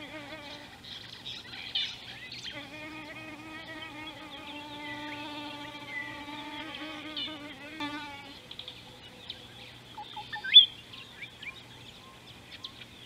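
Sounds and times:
flying insect buzzing: 0.0 - 0.8, 2.5 - 8.4.

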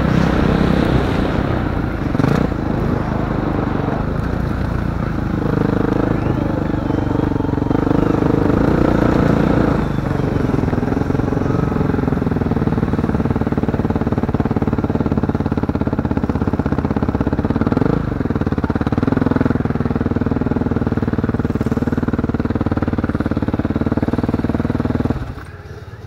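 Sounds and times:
vehicle engine running: 0.0 - 26.0.

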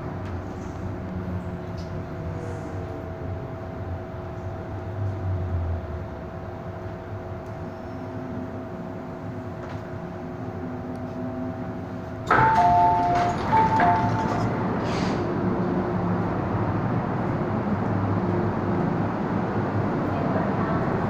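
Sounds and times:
train rumble: 0.0 - 21.0
train doors opening rush: 7.6 - 21.0
two-tone door chime: 12.3 - 14.6.

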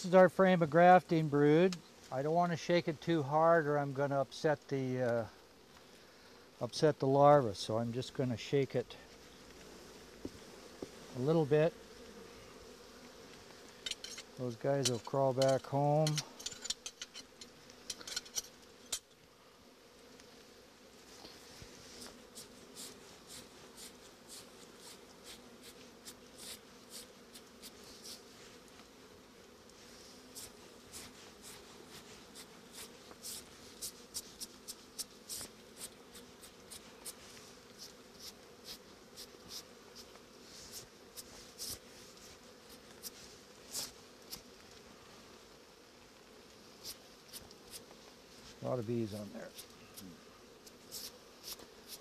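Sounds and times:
bees humming: 0.0 - 52.0.

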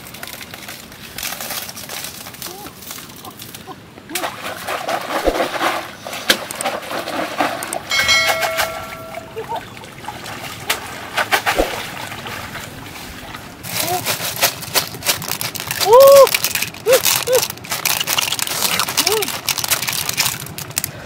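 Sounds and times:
water splashing and sloshing: 0.0 - 21.0
steady ringing tone: 7.9 - 9.8.

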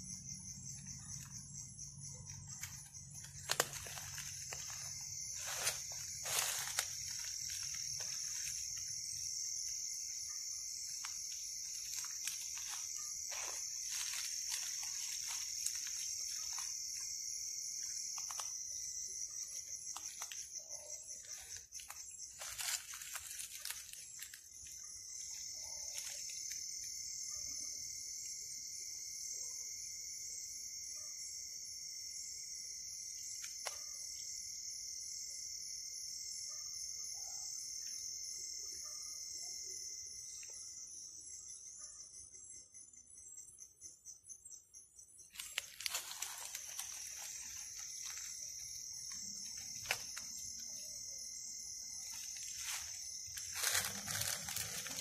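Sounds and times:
high-pitched insect trill: 0.0 - 55.0
lower insect trill: 0.0 - 55.0.

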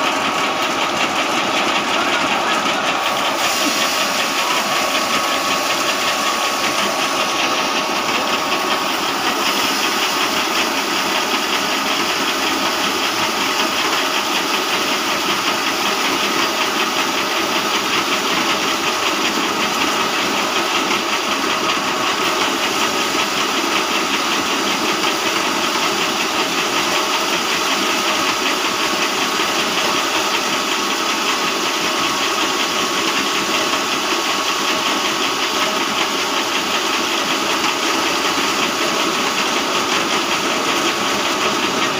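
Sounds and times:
feed grinder running: 0.0 - 41.9
thin steady whine: 1.6 - 12.1.

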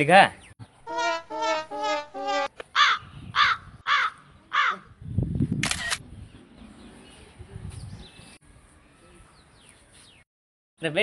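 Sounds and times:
crow cawing: 2.8 - 4.8.

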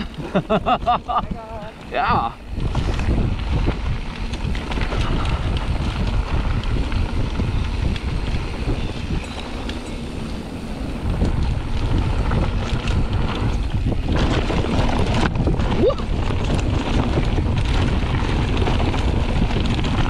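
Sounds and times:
bike knocking and rattling: 0.0 - 20.0
tyres crunching over gravel: 0.0 - 20.0
wind rushing over microphone: 0.0 - 20.0.

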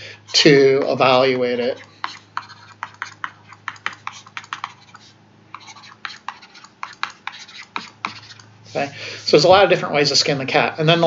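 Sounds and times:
stylus tapping on tablet screen: 1.8 - 8.5.

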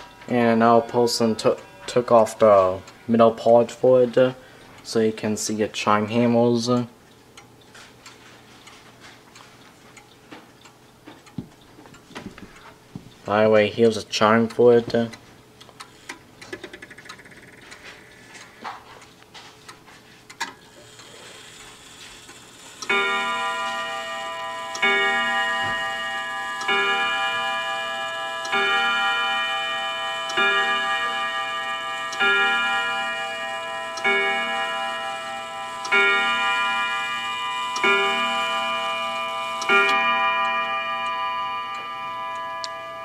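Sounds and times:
clock striking on gong rods: 0.0 - 6.9, 22.8 - 43.0.

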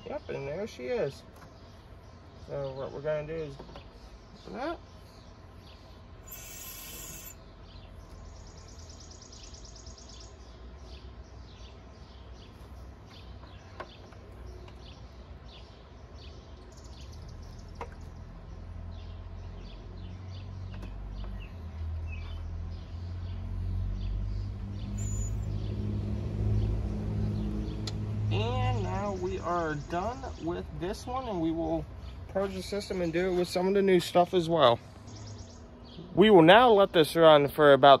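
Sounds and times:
birds chirping: 0.0 - 38.0
valve hissing: 6.2 - 7.4.

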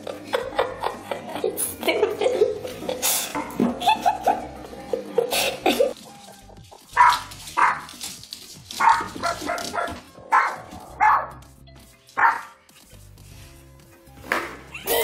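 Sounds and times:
background music: 0.0 - 15.0
small dog barking: 7.0 - 7.9, 8.8 - 11.4, 12.2 - 12.5.

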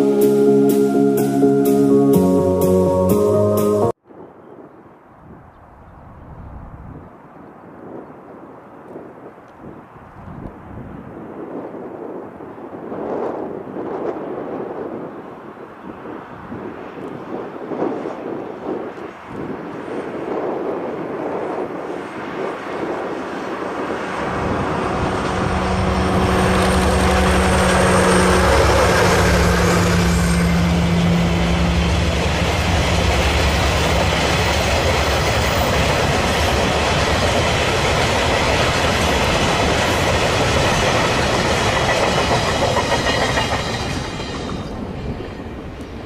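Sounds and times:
diesel locomotive engines droning: 0.0 - 4.0, 18.0 - 46.0
train wagons rolling on rails: 21.2 - 46.0.

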